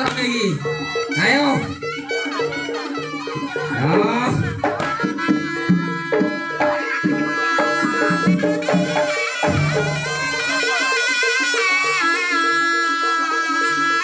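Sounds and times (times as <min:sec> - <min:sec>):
drum strokes: 0:00.0 - 0:11.0
shawm melody: 0:00.0 - 0:14.0.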